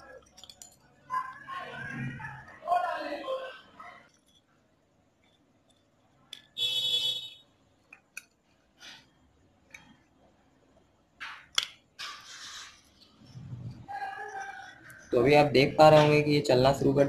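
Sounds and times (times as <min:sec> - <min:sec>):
metal parts clicking and scraping: 0:00.0 - 0:01.4, 0:04.1 - 0:04.6.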